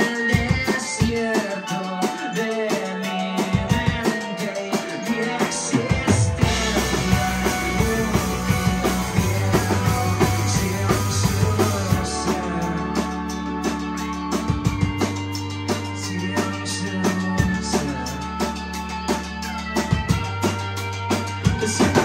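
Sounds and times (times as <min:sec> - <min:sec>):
drum kit: 0:00.0 - 0:22.0
live rock band playing: 0:00.0 - 0:22.0
deep bass line: 0:05.2 - 0:22.0.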